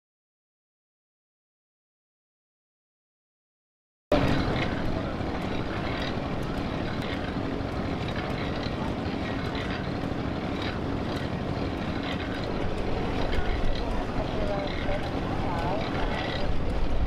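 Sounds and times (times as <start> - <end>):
faint hum: 4.1 - 17.0
steam engine running: 4.1 - 17.0.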